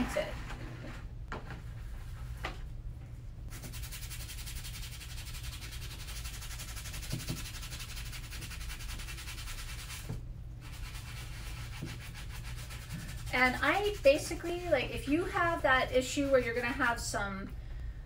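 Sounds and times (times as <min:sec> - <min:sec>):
steady low hum: 0:00.0 - 0:18.0
wet brush scrubbing leather shoe: 0:03.5 - 0:15.6.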